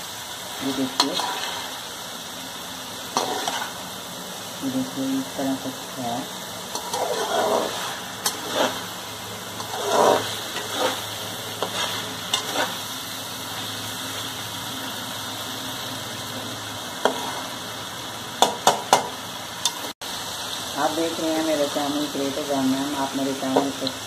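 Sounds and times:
curry sizzling in a wok: 0:00.0 - 0:24.0
metal spatula scraping a pan: 0:00.6 - 0:01.8, 0:03.1 - 0:03.8, 0:06.6 - 0:12.9, 0:17.0 - 0:17.6.

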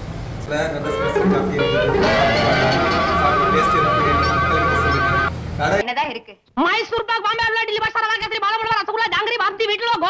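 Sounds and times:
music with high wavering note: 0:00.8 - 0:05.4.

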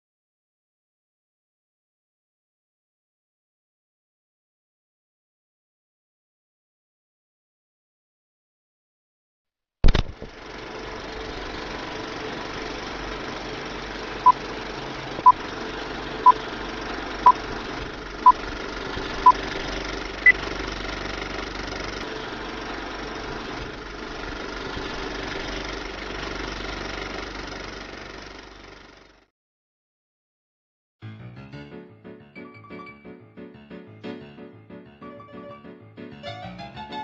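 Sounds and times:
film projector running: 0:09.9 - 0:29.2.

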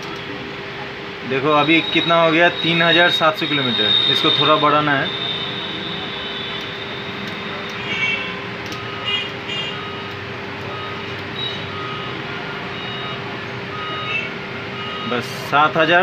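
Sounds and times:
street traffic hum: 0:00.0 - 0:16.0
car horn toots: 0:01.6 - 0:10.0
odometer drums clicking: 0:06.5 - 0:07.9, 0:08.6 - 0:12.0.

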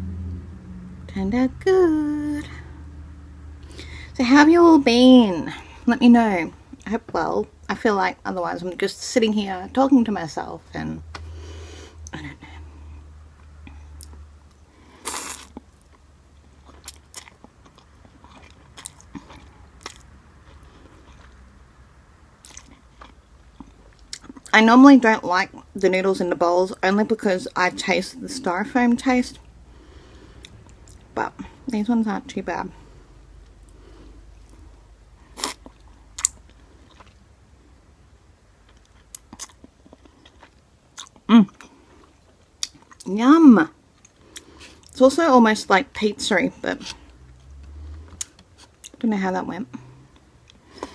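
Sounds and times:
chewing noodles: 0:15.0 - 0:21.4, 0:22.4 - 0:24.5, 0:35.3 - 0:37.2.

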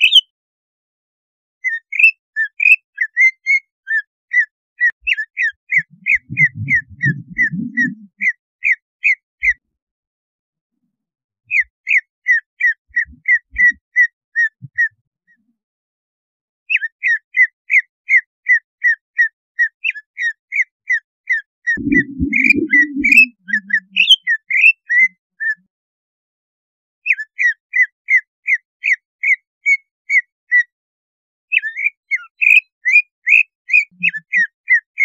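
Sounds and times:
bird whistling sharp notes: 0:00.0 - 0:00.3, 0:05.1 - 0:09.2, 0:21.8 - 0:24.8.

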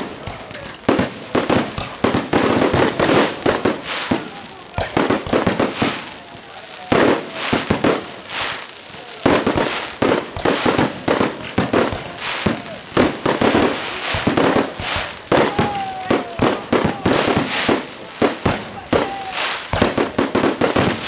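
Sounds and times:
fireworks bursting: 0:00.0 - 0:21.0.

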